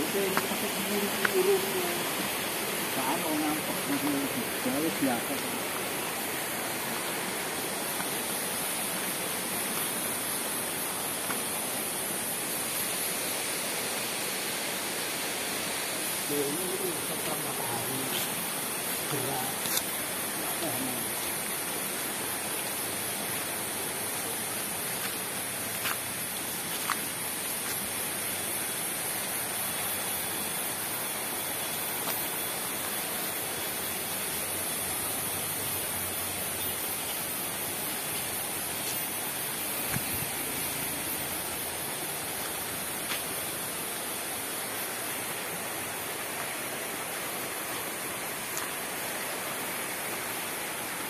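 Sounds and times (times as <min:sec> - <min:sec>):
high hiss: 0:00.0 - 0:51.0
faint ticks: 0:48.5 - 0:48.8.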